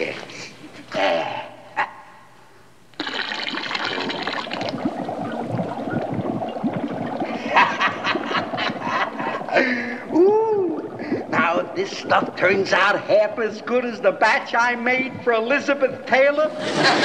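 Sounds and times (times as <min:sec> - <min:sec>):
fizzing hiss: 0:02.9 - 0:16.0
liquid pouring: 0:02.9 - 0:16.1
potion bubbling and gurgling: 0:02.9 - 0:17.0.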